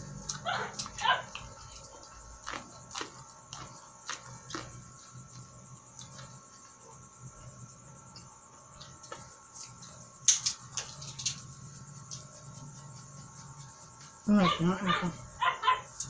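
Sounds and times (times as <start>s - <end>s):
chewing corn on the cob: 0.0s - 6.8s
faint steady hum: 0.0s - 16.0s.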